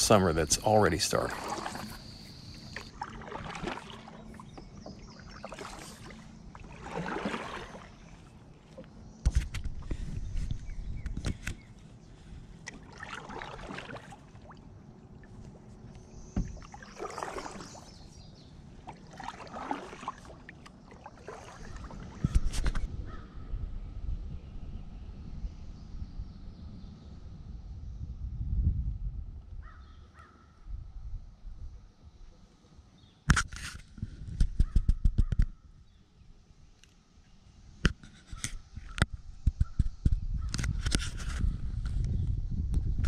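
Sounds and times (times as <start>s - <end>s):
paddle strokes in water: 0.1s - 22.9s.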